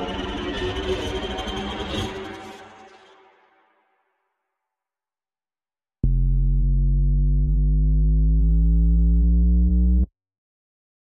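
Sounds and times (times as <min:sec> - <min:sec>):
deep synthesized riser tone: 0:06.0 - 0:10.1.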